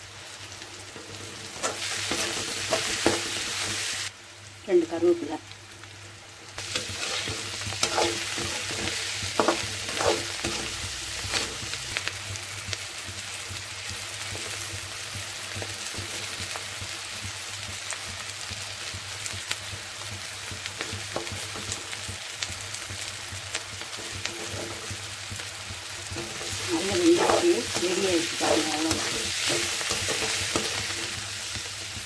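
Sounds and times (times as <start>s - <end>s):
vegetables sizzling in oil: 0.0s - 32.0s
steel spatula scraping pan: 6.6s - 11.6s, 26.1s - 31.2s.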